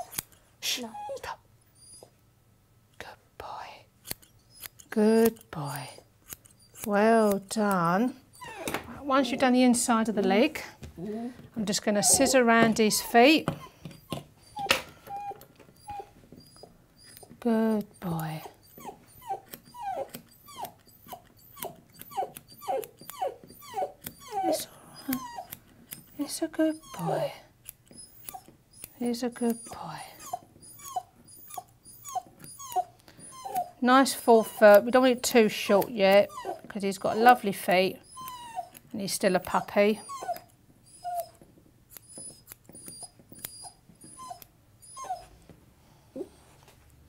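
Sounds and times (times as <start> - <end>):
scissors snipping: 0.0 - 0.4, 4.0 - 8.8, 16.4 - 29.8, 34.5 - 44.5
puppy whimpering: 0.0 - 2.2, 8.0 - 9.6, 11.9 - 45.5, 46.2 - 46.4.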